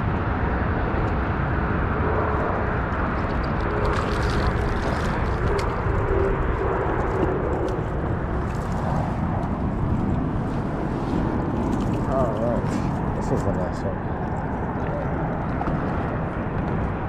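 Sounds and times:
wind buffeting microphone: 0.0 - 17.0
fish splashing: 3.1 - 9.6.

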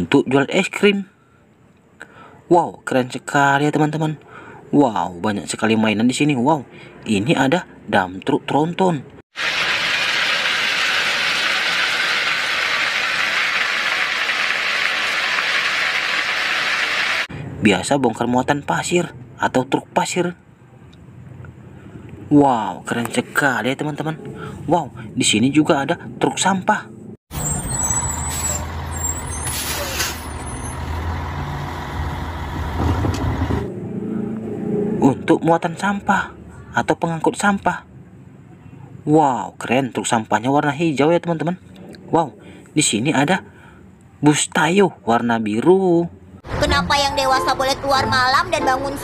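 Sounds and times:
gravel pouring from dump truck: 9.4 - 17.3
diesel engine rumbling: 26.8 - 36.9
air brake hisses: 28.0 - 30.6.

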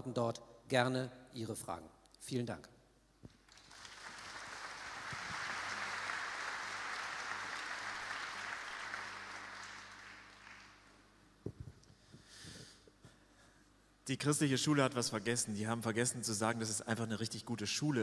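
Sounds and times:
crowd applauding: 3.4 - 11.0.

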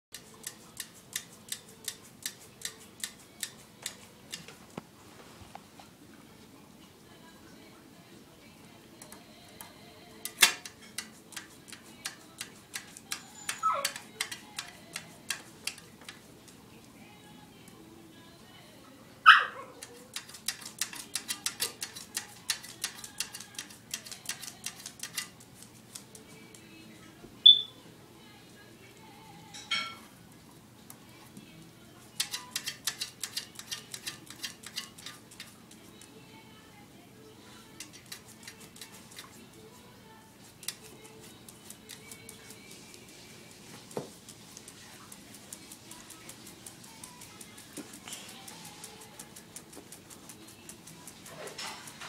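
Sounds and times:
dog clicking on tile floor: 0.1 - 4.8, 9.0 - 16.6, 19.7 - 27.2, 32.0 - 36.2, 37.6 - 39.8, 40.4 - 52.0.

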